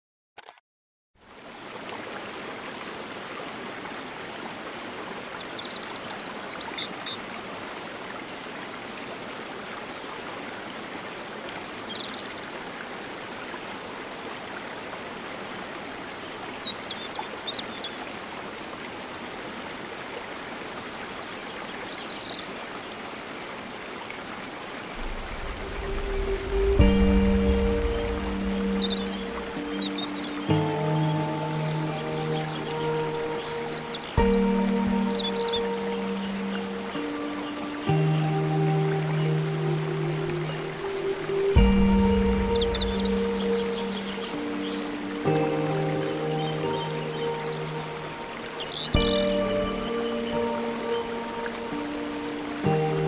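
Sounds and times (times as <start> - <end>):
stream cascading over rocks: 1.2 - 53.0
high chirping calls: 25.0 - 37.9, 39.1 - 53.0.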